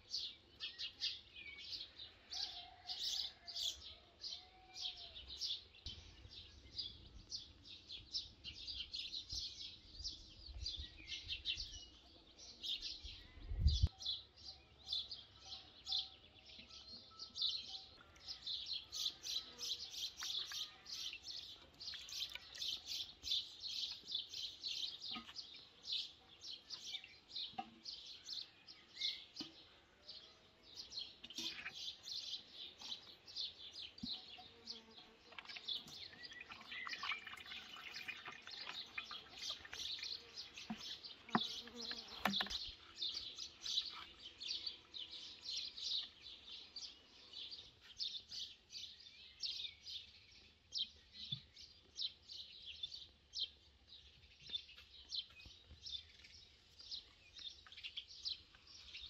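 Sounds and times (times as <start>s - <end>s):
small birds chirping: 0.0s - 59.0s
wind rumble on microphone: 13.0s - 13.9s.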